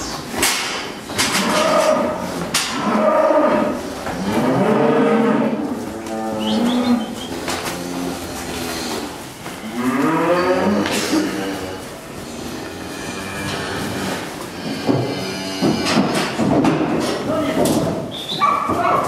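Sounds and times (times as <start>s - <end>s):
cattle mooing: 1.3s - 16.4s.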